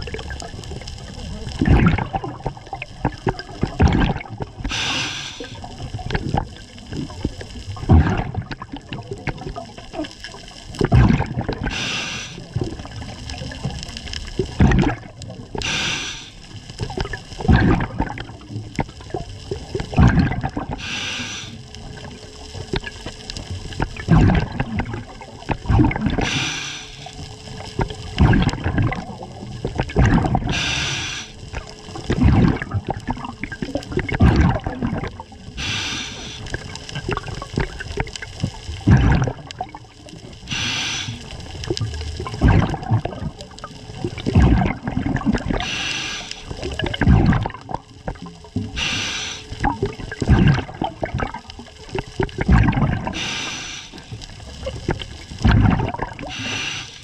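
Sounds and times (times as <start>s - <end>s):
bubbling of exhaled air: 0.0s - 57.0s
regulator hissing inhale: 4.6s - 5.6s, 11.6s - 12.6s, 15.6s - 16.6s, 20.7s - 21.7s, 26.2s - 27.3s, 30.5s - 31.4s, 35.6s - 36.6s, 40.4s - 41.4s, 45.6s - 46.6s, 48.7s - 49.6s, 53.1s - 54.4s, 56.2s - 57.0s.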